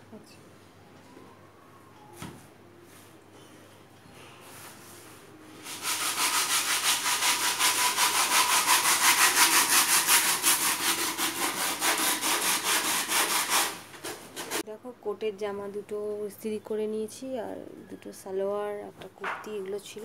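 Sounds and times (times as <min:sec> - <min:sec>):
sandpaper rubbing on wood: 0:05.6 - 0:14.6.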